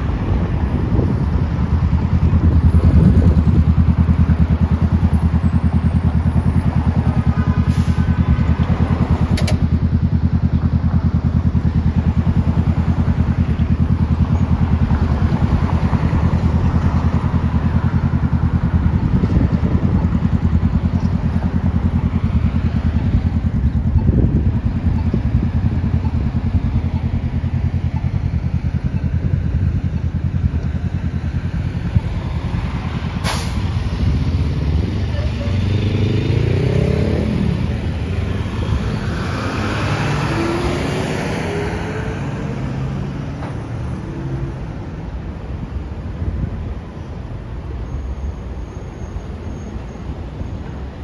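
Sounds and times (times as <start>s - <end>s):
vehicle engine rumbling: 0.0s - 51.0s
sharp click: 9.3s - 9.6s.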